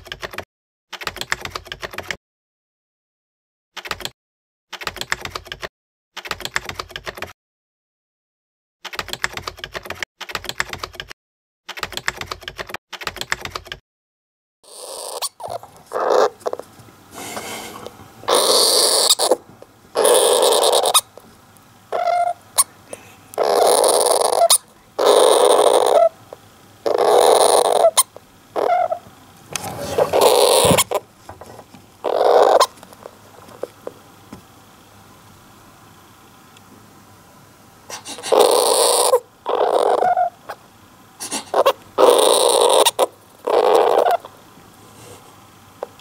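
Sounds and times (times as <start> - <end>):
typewriter key clicks: 3.8 - 4.1
hamster crying: 14.6 - 16.6, 18.3 - 21.2, 21.9 - 29.1, 29.8 - 31.0, 32.0 - 32.8, 38.0 - 40.6, 41.2 - 44.3.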